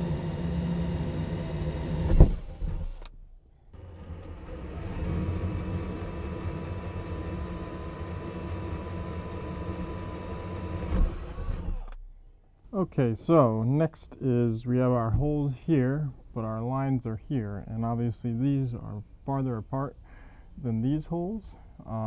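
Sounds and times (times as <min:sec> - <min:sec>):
drill with hole saw cutting wood: 0:00.0 - 0:03.1, 0:03.8 - 0:12.0.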